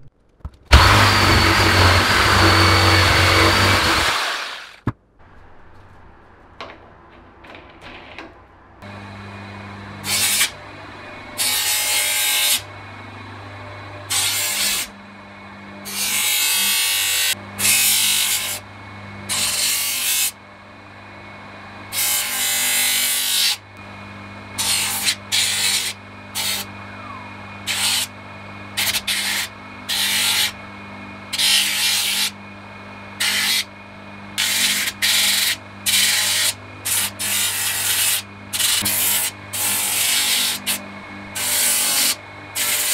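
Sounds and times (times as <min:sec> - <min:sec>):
electric motor humming: 0:00.0 - 0:04.8, 0:23.8 - 0:42.9.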